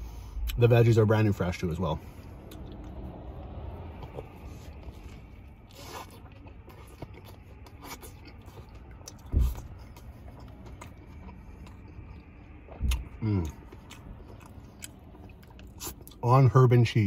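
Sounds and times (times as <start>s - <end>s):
chewing with wet clicks: 2.4s - 16.5s
sandwich bite crunch: 3.9s - 16.3s
dull thump: 9.3s - 9.6s.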